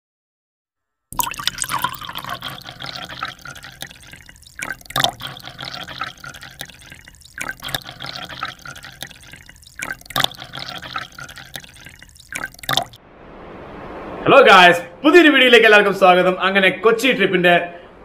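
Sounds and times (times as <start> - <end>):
ice clinking in glass: 1.2 - 13.0
liquor pouring over ice: 1.2 - 13.0.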